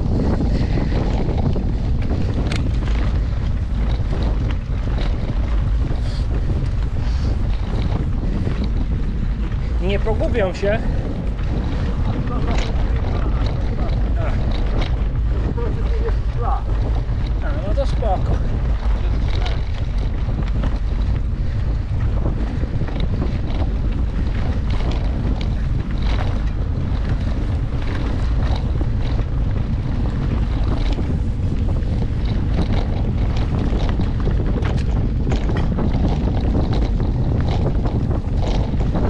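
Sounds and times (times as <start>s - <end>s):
bike clicks and rattles: 0.0s - 39.0s
wind rushing over microphone: 0.0s - 39.0s.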